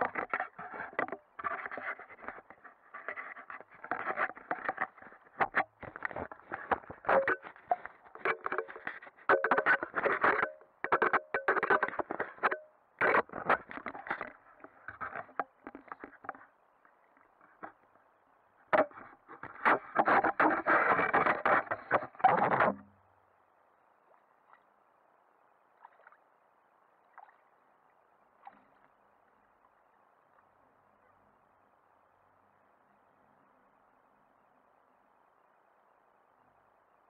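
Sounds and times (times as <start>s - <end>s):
water splashing against camera housing: 0.0s - 16.5s, 18.7s - 23.0s.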